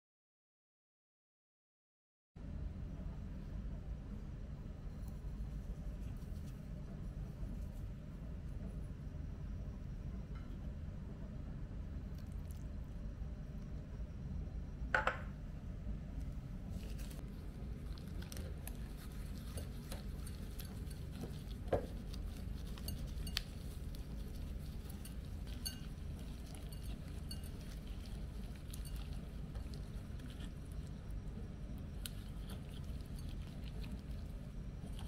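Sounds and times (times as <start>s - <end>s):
steady low hum: 2.4s - 35.0s
knock against glass bowl: 15.0s - 15.3s
gloved hands rustling chicken: 16.7s - 30.8s.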